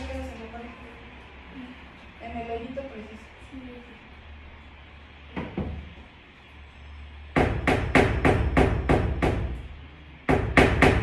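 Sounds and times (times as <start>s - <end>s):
hammer striking nail into wood: 7.4s - 9.6s, 10.3s - 11.0s.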